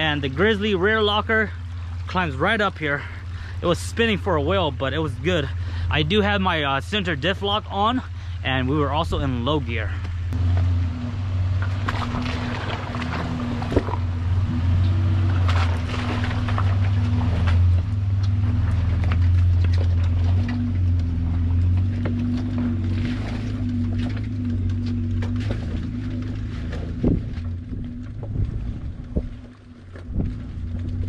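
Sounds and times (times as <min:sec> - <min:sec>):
truck engine droning: 0:00.0 - 0:31.0
tyres crunching over stones: 0:09.2 - 0:31.0.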